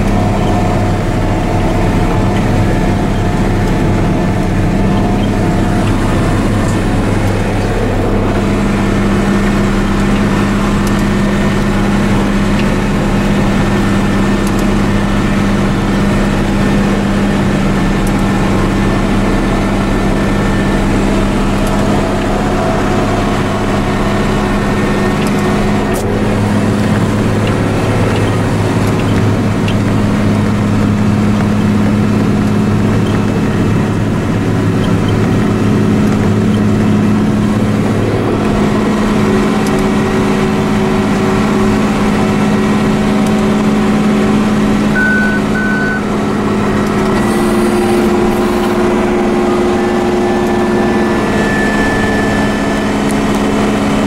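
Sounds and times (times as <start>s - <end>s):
tractor diesel engine under load: 0.0s - 54.0s
short high beeps: 45.0s - 46.1s.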